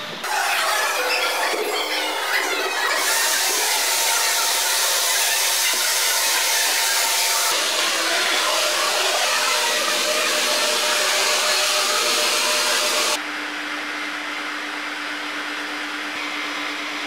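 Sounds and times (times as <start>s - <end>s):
hair dryers blowing: 0.0s - 13.2s.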